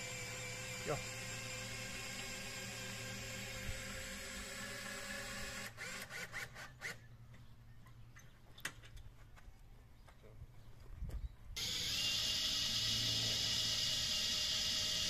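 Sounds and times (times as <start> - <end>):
cordless drill running: 0.0 - 7.1, 11.6 - 15.0.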